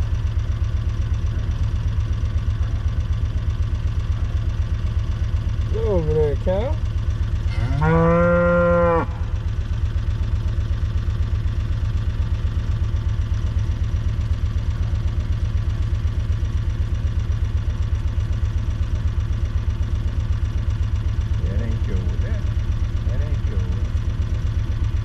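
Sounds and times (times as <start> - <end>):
vehicle engine idling: 0.0 - 25.0
cow mooing: 7.5 - 9.4.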